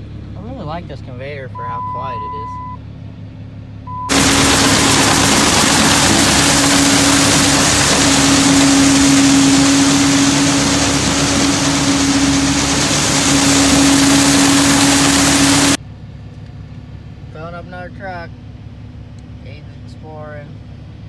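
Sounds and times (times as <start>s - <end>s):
grain conveyor running: 4.0s - 15.8s
loud rushing of grain: 4.1s - 15.8s.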